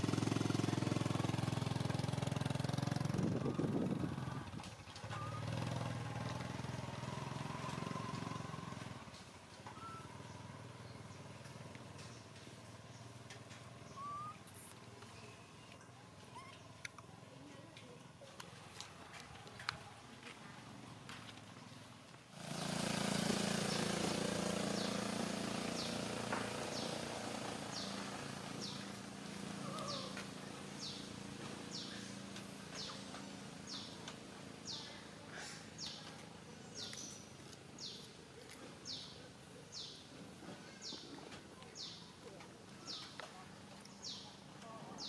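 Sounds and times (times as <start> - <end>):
high downward chirp: 13.9 - 14.4.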